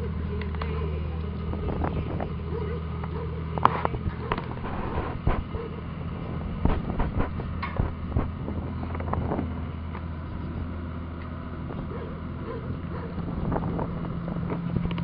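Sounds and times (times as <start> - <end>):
low motor-like hum: 0.0 - 15.0
wind buffeting microphone: 1.3 - 2.7, 3.6 - 10.8, 11.6 - 15.0.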